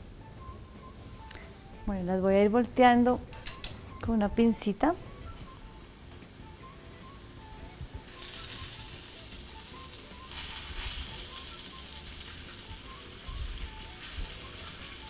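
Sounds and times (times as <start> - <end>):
oil sizzling in a pan: 5.1 - 15.0.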